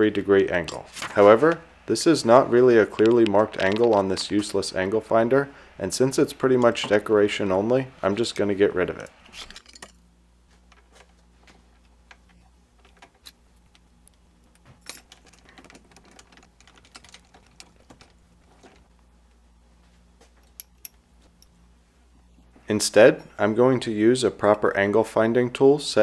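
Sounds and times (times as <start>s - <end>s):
low steady hum: 0.0s - 26.0s
faint clicks and metal taps: 10.7s - 19.4s, 20.2s - 21.6s.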